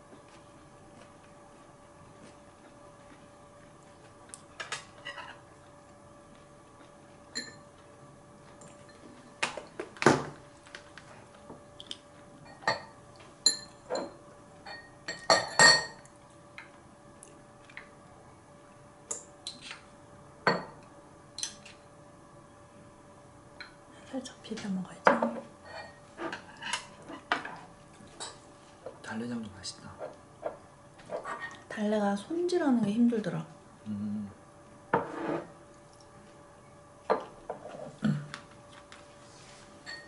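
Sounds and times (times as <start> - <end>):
utensils clinking on ceramic bowls: 7.3 - 7.7, 13.5 - 16.0.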